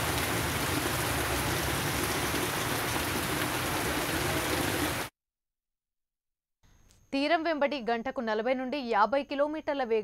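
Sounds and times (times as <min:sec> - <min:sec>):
heavy rain falling: 0:00.0 - 0:05.1.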